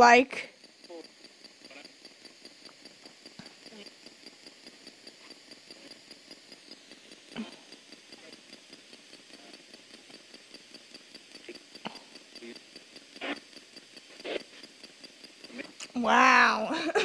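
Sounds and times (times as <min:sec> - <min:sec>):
pulsing radio static: 0:00.0 - 0:08.6, 0:11.4 - 0:14.6.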